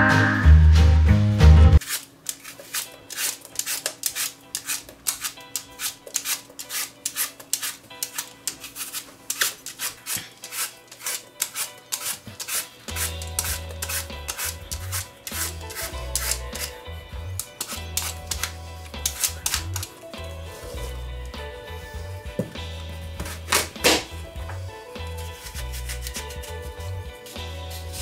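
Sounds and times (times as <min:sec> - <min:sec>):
background music with bass line: 0:00.0 - 0:01.8, 0:12.9 - 0:28.0
peeler scraping apple skin: 0:01.8 - 0:21.0, 0:25.0 - 0:28.0.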